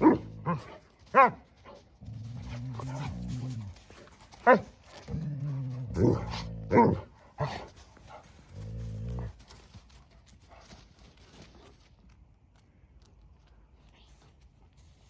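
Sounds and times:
dog barking: 0.0 - 1.4, 4.4 - 4.7, 6.7 - 7.6
dog play growling: 2.0 - 9.9.

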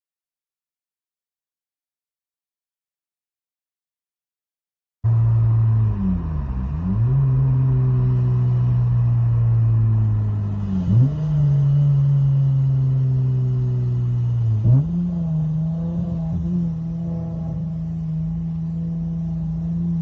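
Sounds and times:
car engine at full throttle: 5.1 - 20.0.

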